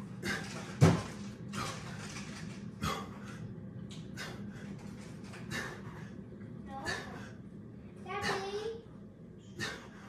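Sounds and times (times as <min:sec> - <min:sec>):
steady low hum: 0:00.0 - 0:10.0
man breathing hard: 0:01.5 - 0:07.6, 0:09.4 - 0:10.0.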